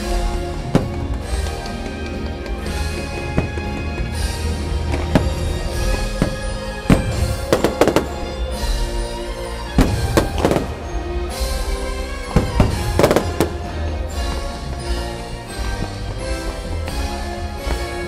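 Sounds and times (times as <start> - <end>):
fireworks show music: 0.0 - 18.0
firework shells bursting: 0.2 - 16.7.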